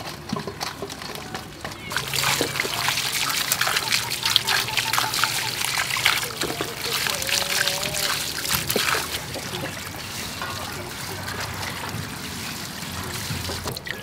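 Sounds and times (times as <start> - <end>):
water pouring into metal basin: 0.0 - 14.0
hands scrubbing potatoes: 1.9 - 14.0.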